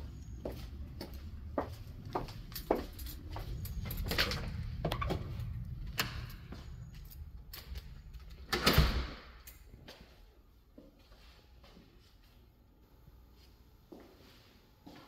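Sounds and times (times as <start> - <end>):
door opening: 2.6 - 9.6.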